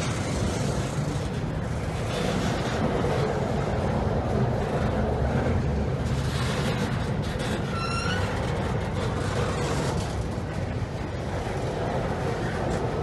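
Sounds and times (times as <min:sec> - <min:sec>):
steel wheels rumbling on rails: 0:00.0 - 0:13.0
high-pitched wheel squeal: 0:07.6 - 0:08.4.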